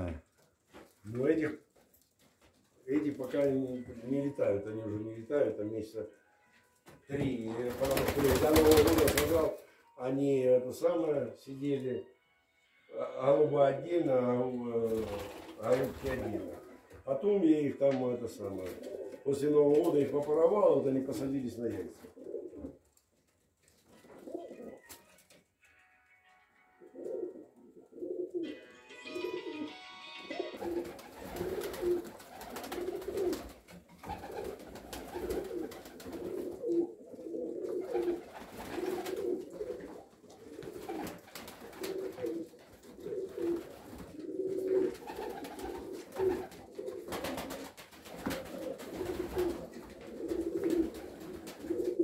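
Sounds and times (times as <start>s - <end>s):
rustling: 21.7s - 25.5s
pigeons cooing: 22.0s - 22.8s, 26.9s - 28.5s, 30.4s - 52.0s.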